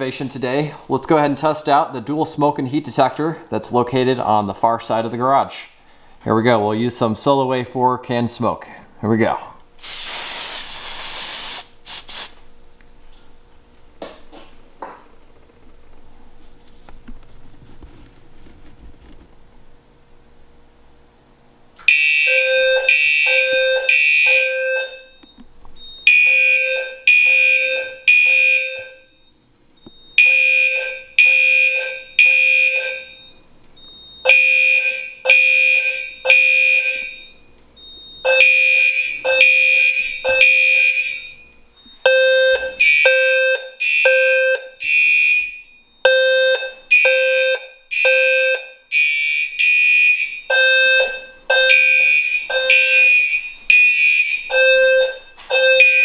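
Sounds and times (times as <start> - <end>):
fire alarm horns blasting: 21.8 - 56.0.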